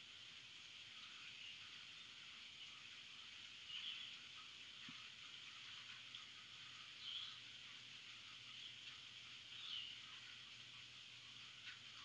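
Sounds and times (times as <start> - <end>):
faint steady rain: 0.0 - 12.0
bird chirping: 3.6 - 4.2, 6.7 - 7.5, 8.5 - 10.4.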